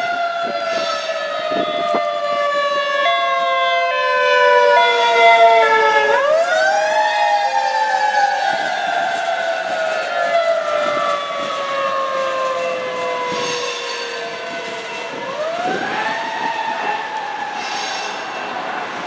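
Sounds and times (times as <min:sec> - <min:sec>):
emergency vehicle siren: 0:00.0 - 0:19.0
train wheels rumbling: 0:10.6 - 0:19.0.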